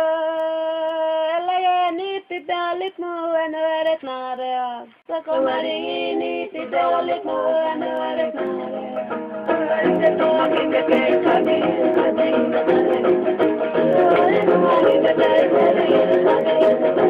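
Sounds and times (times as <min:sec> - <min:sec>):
person singing long notes: 0:04.8 - 0:17.0
music with several voices: 0:05.1 - 0:17.0.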